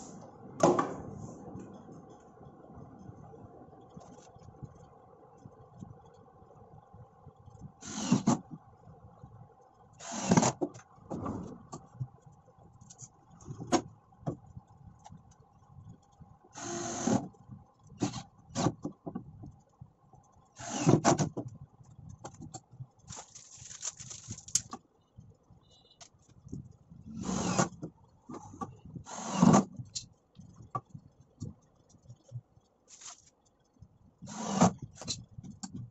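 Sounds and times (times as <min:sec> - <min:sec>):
faint steady hum: 0:00.0 - 0:35.9
drill driving screws into plywood: 0:07.8 - 0:08.5, 0:10.0 - 0:10.6, 0:16.6 - 0:17.3, 0:18.0 - 0:18.8, 0:20.6 - 0:21.3, 0:27.2 - 0:27.8, 0:29.1 - 0:29.7, 0:34.2 - 0:35.2.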